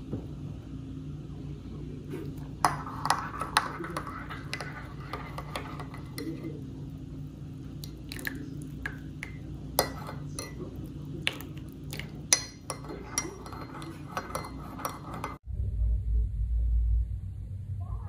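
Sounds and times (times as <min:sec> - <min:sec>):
steady low hum: 0:00.0 - 0:18.0
teaspoon clinking in cup: 0:12.0 - 0:15.4.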